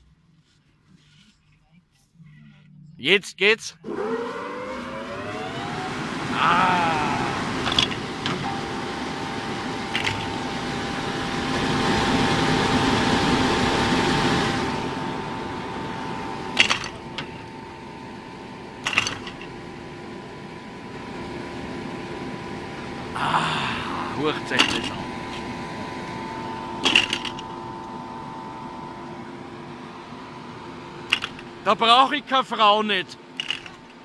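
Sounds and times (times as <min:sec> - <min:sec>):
electric drive whine: 0:03.8 - 0:34.0
sharp clunks of lift machinery: 0:16.6 - 0:17.5.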